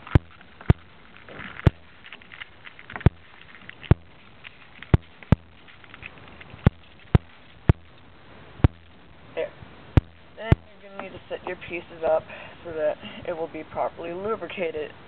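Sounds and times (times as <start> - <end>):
light plastic rattling: 0.0 - 9.1.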